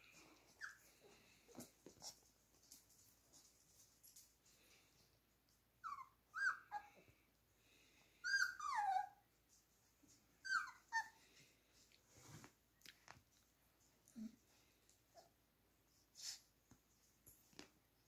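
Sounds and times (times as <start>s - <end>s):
puppies whining and yelping: 0.2s - 1.2s, 5.8s - 7.1s, 8.1s - 9.4s, 10.4s - 11.4s.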